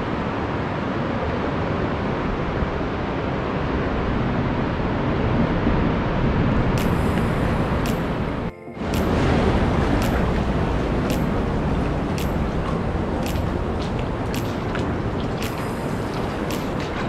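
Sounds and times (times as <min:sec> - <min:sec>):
ocean surf: 0:00.0 - 0:17.0
wind buffeting microphone: 0:01.4 - 0:17.0
sharp clicks: 0:06.8 - 0:08.4, 0:10.0 - 0:10.3, 0:11.1 - 0:11.5, 0:12.2 - 0:15.8, 0:16.5 - 0:16.9.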